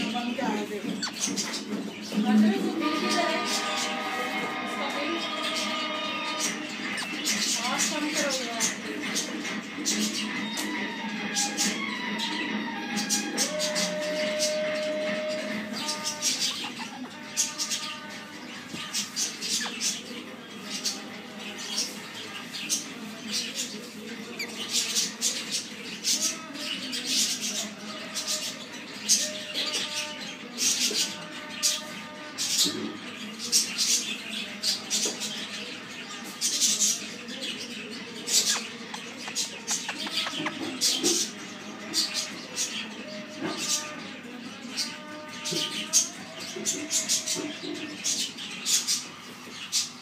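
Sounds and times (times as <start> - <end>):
parrot squeaking and chirping: 0.0 - 20.0, 38.0 - 44.0.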